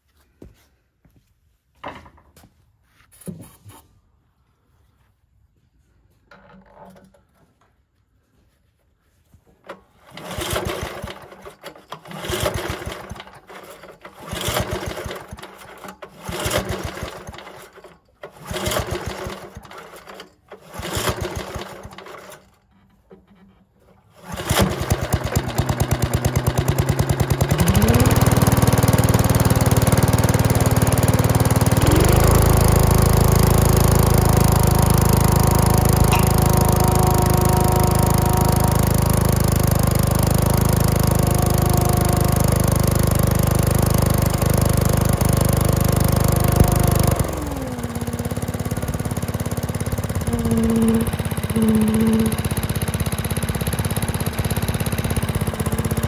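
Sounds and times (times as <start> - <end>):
recoil starter pulls: 9.6 - 56.0
small engine running and revving: 10.2 - 11.3, 12.1 - 13.3, 14.2 - 15.6, 16.2 - 17.7, 18.4 - 19.7, 20.7 - 22.0, 24.3 - 56.0.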